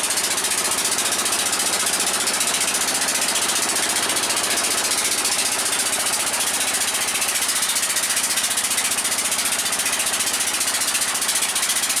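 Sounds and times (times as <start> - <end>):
boat engine chugging: 0.0 - 12.0.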